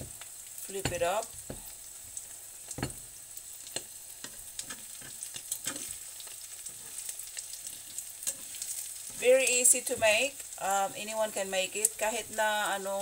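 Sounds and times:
omelette sizzling in oil: 0.0 - 13.0
metal spatula scraping pan: 3.8 - 10.4.

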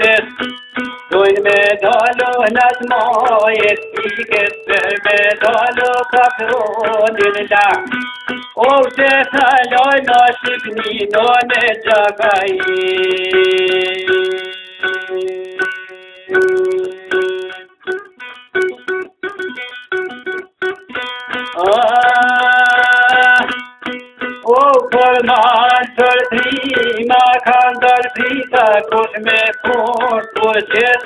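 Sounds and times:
person singing long notes: 0.0 - 8.0, 8.6 - 18.1, 21.4 - 23.8, 24.4 - 31.0
plucked string instrument: 0.0 - 31.0.

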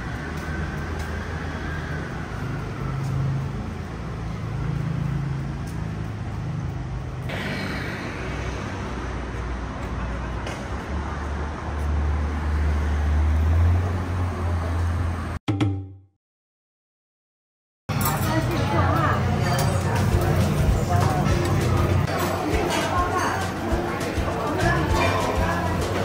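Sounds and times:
moving vehicle rumble: 0.0 - 15.4.

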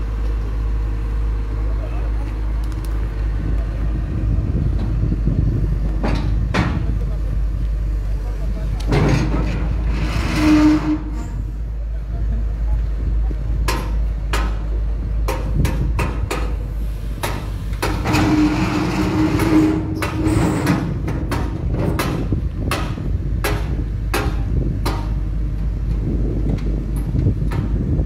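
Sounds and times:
excavator diesel engine rumble: 0.0 - 28.0
sharp knocks and clanks: 5.9 - 6.9, 8.8 - 11.1, 13.6 - 16.6, 17.2 - 25.2, 25.9 - 27.9.

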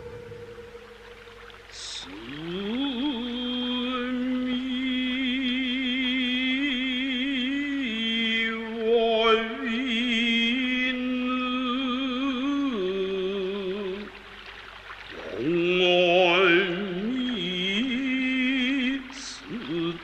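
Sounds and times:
person chanting with vibrato: 0.0 - 7.0.

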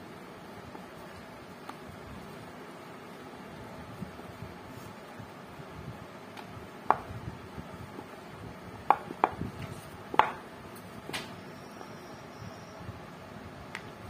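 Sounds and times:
rolling pin knocking on board: 10.1 - 10.4.

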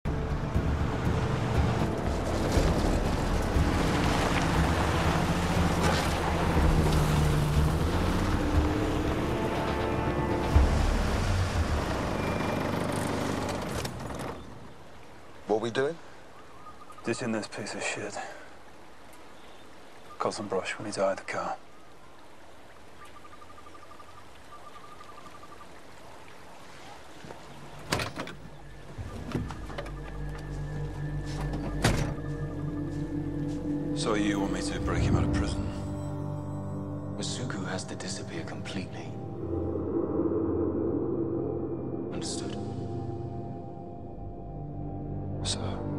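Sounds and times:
steady outdoor hiss: 0.1 - 40.8
tyres on gravel: 1.4 - 14.6
low steady drone: 29.7 - 45.9.

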